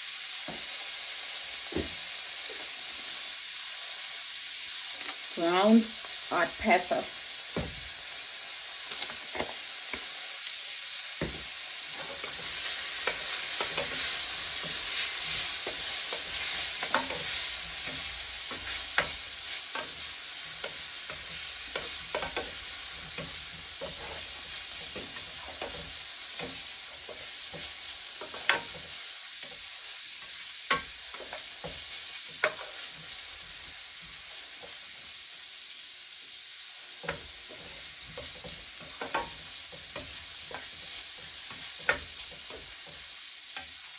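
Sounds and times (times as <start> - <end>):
vegetables sizzling in oil: 0.0 - 43.9
utensil scraping and clacking on pan: 11.2 - 34.8, 37.0 - 43.8.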